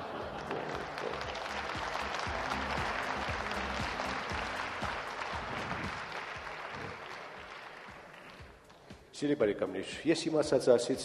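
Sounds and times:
audience applauding: 0.0 - 8.8.

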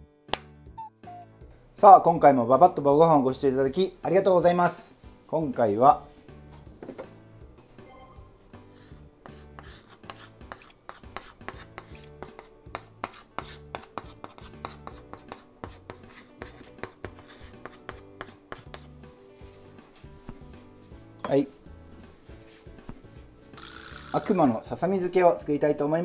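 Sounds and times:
quiet background music: 0.0 - 26.0
chalk tapping and scratching: 8.7 - 20.6.

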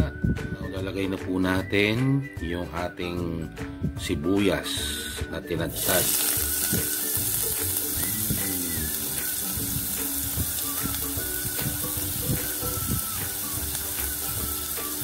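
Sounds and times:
onion sizzling in oil: 5.7 - 15.0.

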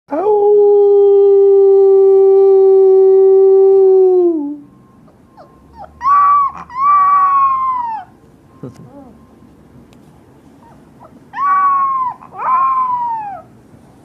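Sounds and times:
puppy howling: 5.4 - 8.2, 10.6 - 13.6.

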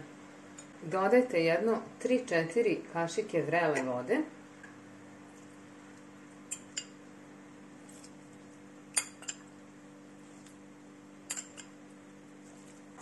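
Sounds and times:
metal spoon clinking against glass: 11.3 - 11.7.

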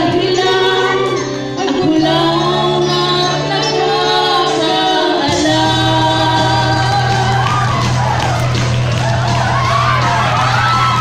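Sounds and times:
women singing into microphones: 0.0 - 7.8
backing track with bass line: 0.0 - 11.0.

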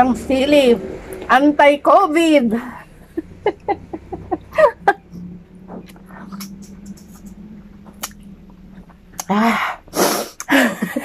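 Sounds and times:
steady low hum: 0.0 - 11.0
woman laughing: 2.5 - 5.2, 10.4 - 11.0
quiet eating sounds: 4.0 - 10.5.

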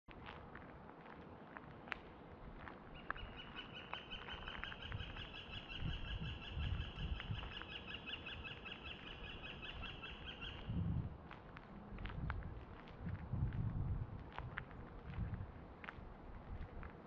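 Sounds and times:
forest ambience: 1.1 - 10.8.

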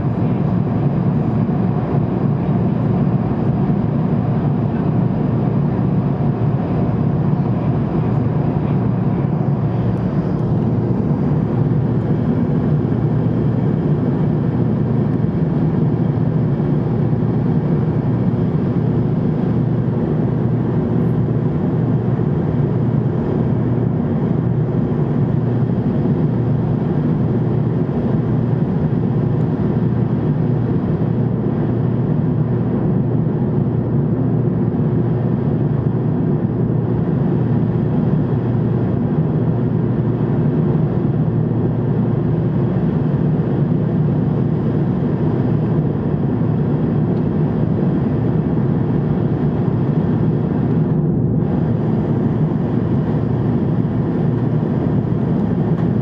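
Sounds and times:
jet airliner cabin drone: 0.0 - 56.0.

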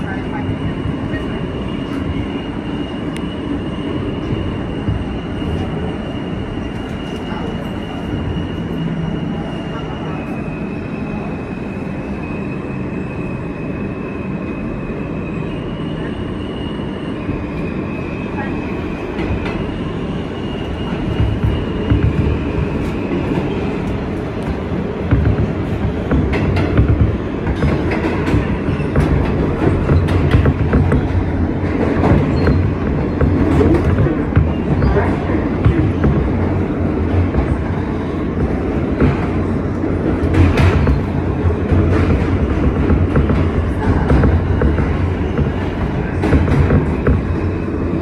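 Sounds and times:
train wheels rumbling on rails: 0.0 - 48.0
heavy knocks: 25.0 - 31.3.

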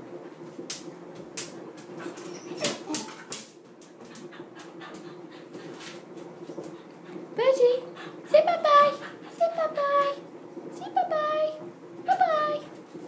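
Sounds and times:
dog whimpering: 2.0 - 3.3.

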